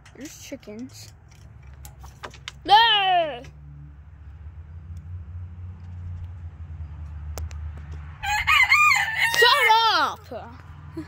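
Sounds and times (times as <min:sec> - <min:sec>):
rooster crowing: 0:08.2 - 0:09.7.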